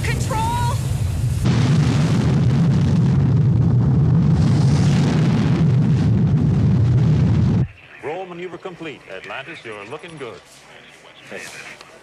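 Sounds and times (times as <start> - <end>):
rocket exhaust rumble: 0.0 - 7.8.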